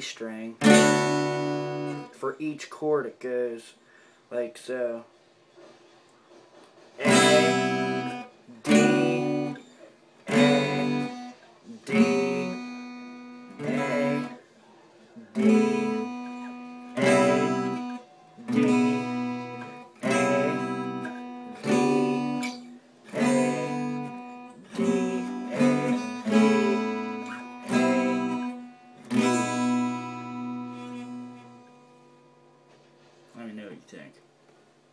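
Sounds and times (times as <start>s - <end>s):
guitar strumming chords: 0.0s - 2.6s, 6.7s - 33.6s.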